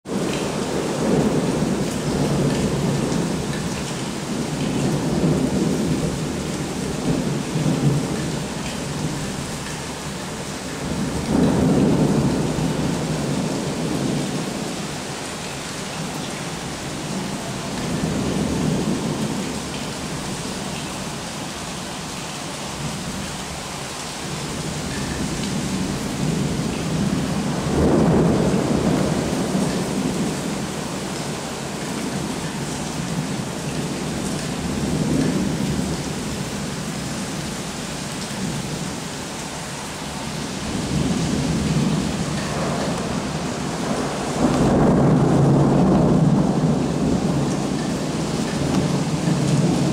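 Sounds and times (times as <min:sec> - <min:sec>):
heavy rain falling: 0:00.1 - 0:49.9
thunder rolling: 0:25.8 - 0:30.5, 0:40.6 - 0:49.9.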